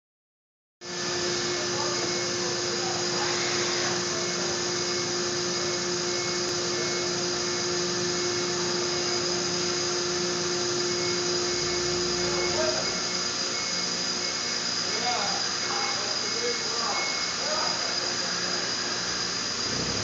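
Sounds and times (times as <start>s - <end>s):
machinery hum and whine: 0.8s - 20.0s.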